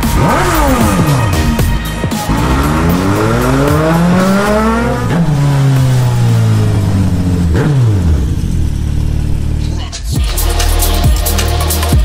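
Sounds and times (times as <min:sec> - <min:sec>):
music: 0:00.0 - 0:07.6, 0:09.6 - 0:12.0
vehicle engine passing by: 0:02.2 - 0:09.8.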